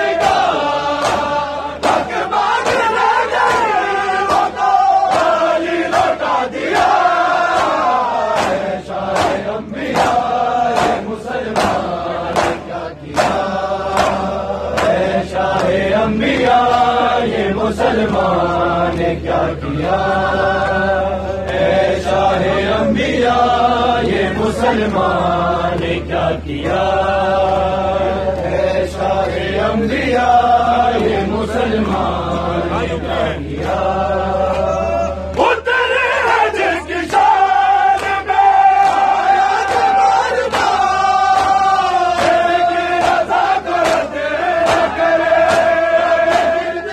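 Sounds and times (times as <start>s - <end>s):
men chanting in unison: 0.0s - 46.9s
hand slaps on chests: 0.1s - 15.8s, 37.0s - 46.8s.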